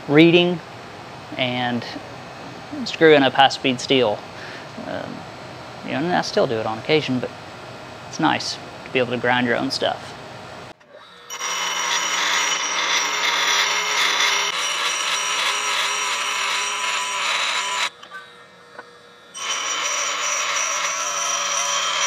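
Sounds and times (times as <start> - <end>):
motor hum: 4.0 - 22.0
grinding wheel on steel: 10.8 - 22.0.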